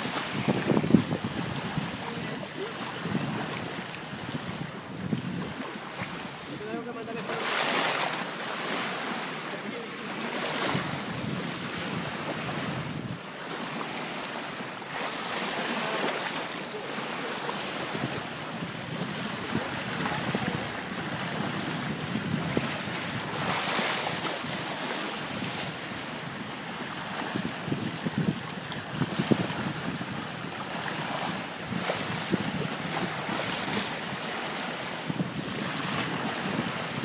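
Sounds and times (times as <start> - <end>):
wind buffeting microphone: 0.0 - 6.8, 10.5 - 13.2, 17.8 - 37.0
bow wave rushing along hull: 0.0 - 37.0
water splashes: 0.0 - 37.0.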